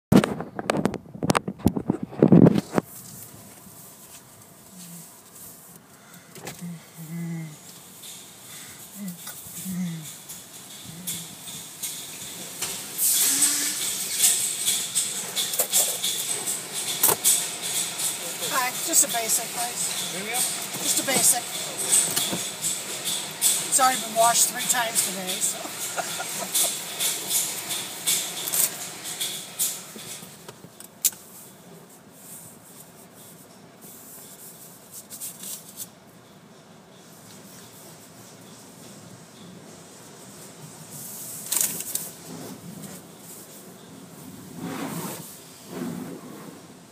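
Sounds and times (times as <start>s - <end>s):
spraying water hiss: 6.8s - 30.4s
irregular clicks and knocks: 10.1s - 19.0s, 19.8s - 23.9s
spray wand hissing bursts: 11.7s - 15.0s.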